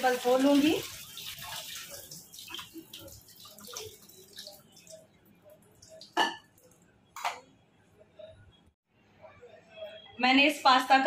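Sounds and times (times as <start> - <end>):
water dripping into sink: 0.0 - 7.5.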